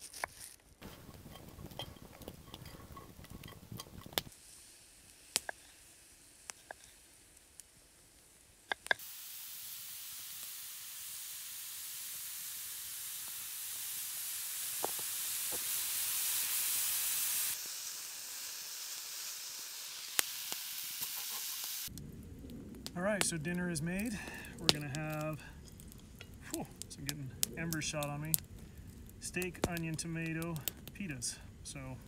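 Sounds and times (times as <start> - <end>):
meat and onions sizzling in pan: 0.8 - 23.5
sharp pops of oil: 14.8 - 15.8.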